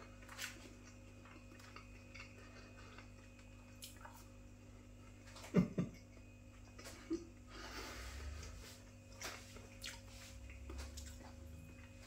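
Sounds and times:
man chewing: 0.0s - 5.6s, 6.5s - 12.0s.

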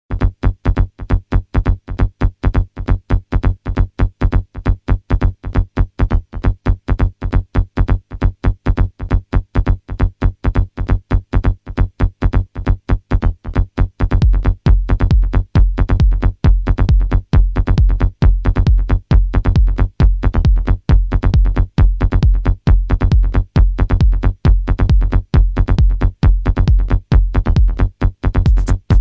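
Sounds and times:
low bass pulse: 14.1s - 27.8s, 28.4s - 29.0s
trance synthesizer notes: 28.4s - 29.0s.

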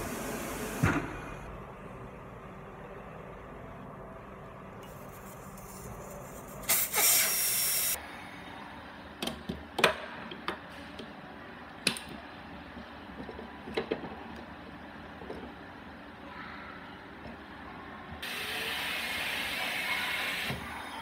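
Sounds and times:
air hissing from tire valve: 6.6s - 8.0s.

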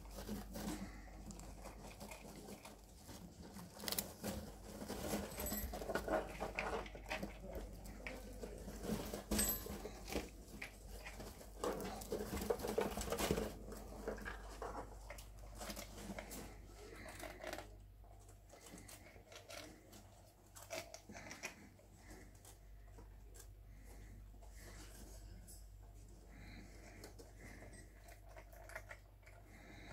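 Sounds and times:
rats rustling in bedding: 0.0s - 28.0s
rats crunching food: 0.0s - 29.9s.

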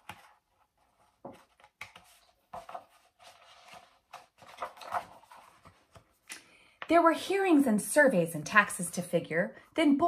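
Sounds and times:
book pages rustling: 0.0s - 6.9s.

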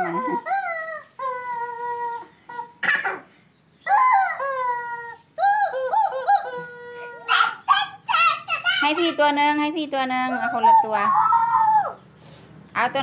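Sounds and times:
rubber chicken toy squawking: 0.0s - 2.8s, 3.8s - 9.2s.

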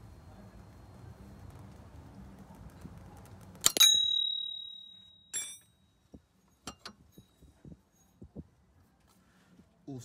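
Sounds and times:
spanner striking metal: 3.6s - 5.8s, 6.6s - 7.4s
light metallic clink: 3.6s - 7.4s.

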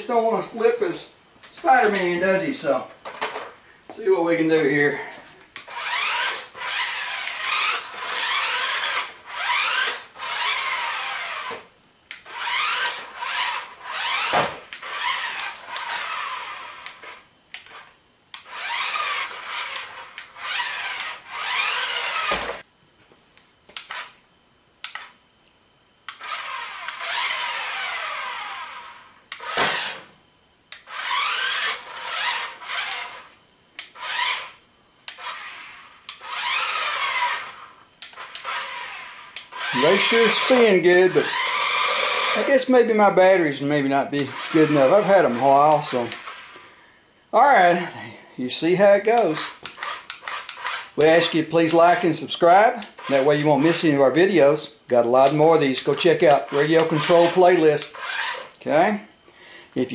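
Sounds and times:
toy car electric motors whining: 5.6s - 22.7s, 23.8s - 24.2s, 26.1s - 30.1s, 30.7s - 43.1s, 44.2s - 46.8s, 49.1s - 54.6s, 55.2s - 58.6s.

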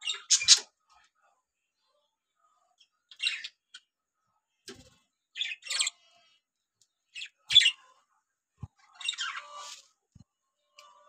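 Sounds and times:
budgerigars chirping: 0.0s - 0.6s.

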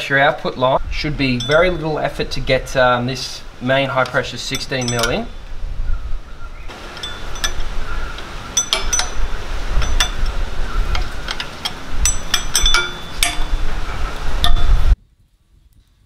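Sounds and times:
metal spanner clinking: 1.3s - 2.8s, 3.7s - 5.4s, 6.7s - 13.8s.

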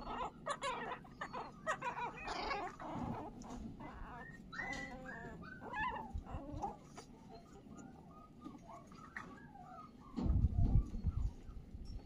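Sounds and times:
young animal whimpering: 0.0s - 12.0s
wind rumble on microphone: 5.7s - 6.8s, 10.1s - 12.0s.

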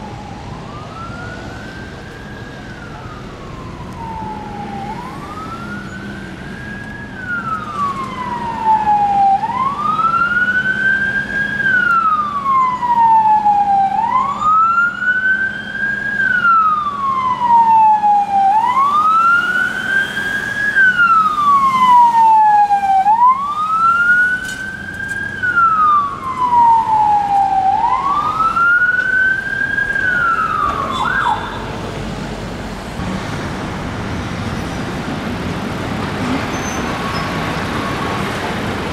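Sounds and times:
siren chirp: 0.0s - 31.8s
police siren wailing: 0.0s - 32.0s, 36.9s - 38.9s
road traffic noise: 0.0s - 38.9s.

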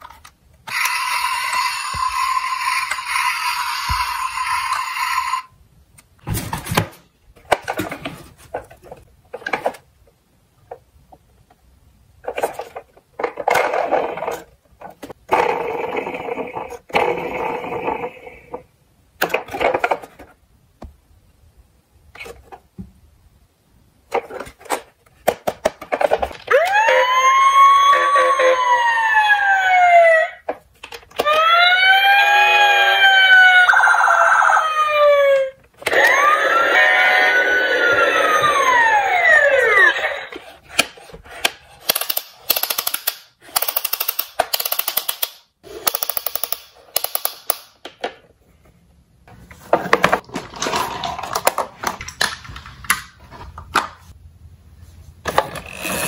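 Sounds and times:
toy fire truck electronic siren: 0.7s - 5.5s, 26.5s - 30.2s, 31.2s - 40.2s
plastic toys clicking and knocking: 12.2s - 15.6s, 24.1s - 26.8s, 30.4s - 31.5s, 40.3s - 48.3s, 49.8s - 54.1s.

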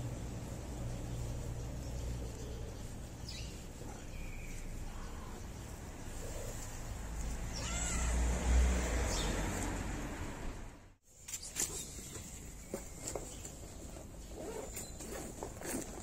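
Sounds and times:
cat meowing: 7.5s - 8.4s.

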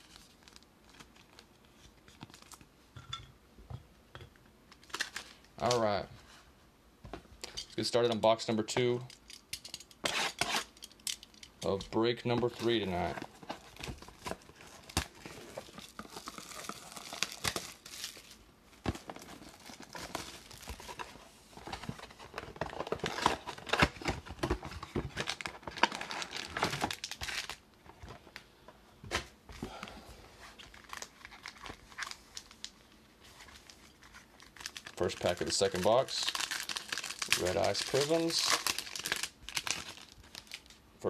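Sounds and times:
plastic wrap crackling and tearing: 0.0s - 2.7s, 4.8s - 5.8s, 12.5s - 18.4s, 19.0s - 27.6s, 30.5s - 40.8s
foil packs rustling: 12.2s - 28.2s, 29.6s - 32.6s, 33.2s - 40.8s.

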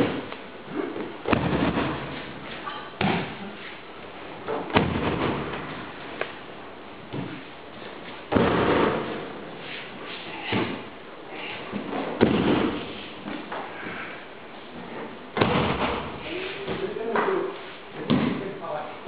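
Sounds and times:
body thudding on mat: 1.2s - 2.3s, 4.6s - 5.8s, 8.3s - 9.2s, 15.4s - 16.2s.

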